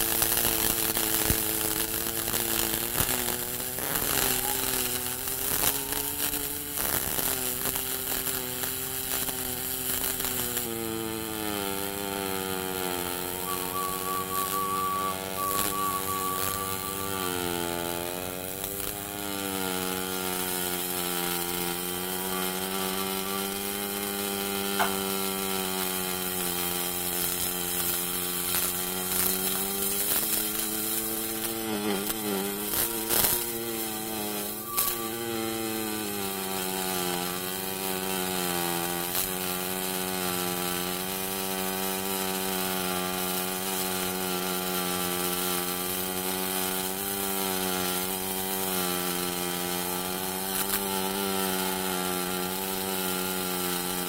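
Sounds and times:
welding arc buzzing: 0:00.0 - 0:54.0
welding crackles and pops: 0:00.0 - 0:54.0.

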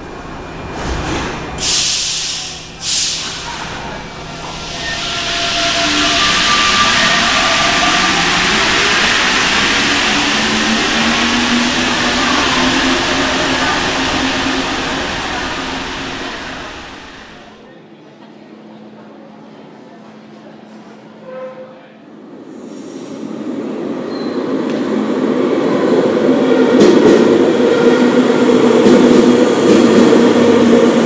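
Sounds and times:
air brake hisses: 0:01.6 - 0:03.5.

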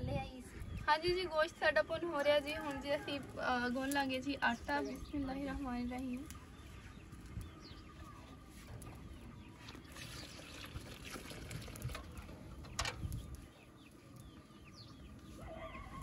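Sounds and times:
small birds chirping: 0:00.0 - 0:16.0
water pouring into bowl: 0:09.7 - 0:12.2.

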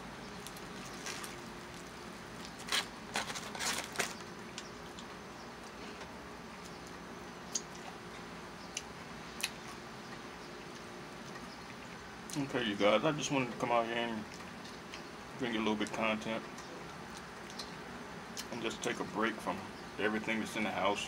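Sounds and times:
mouth clicks and smacks: 0:07.5 - 0:08.0, 0:08.7 - 0:12.4.

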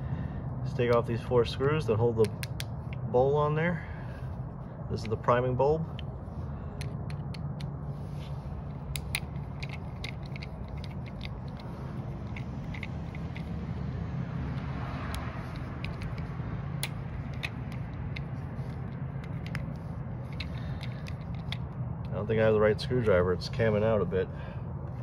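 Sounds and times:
low hum: 0:00.0 - 0:23.5
screwdriver clicking and scraping: 0:05.0 - 0:13.6, 0:14.5 - 0:22.2.

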